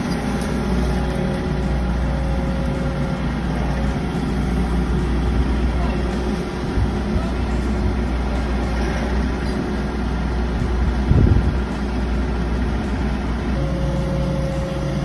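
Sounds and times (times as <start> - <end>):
excavator diesel engine running: 0.0 - 15.0
steady whine: 0.0 - 15.0.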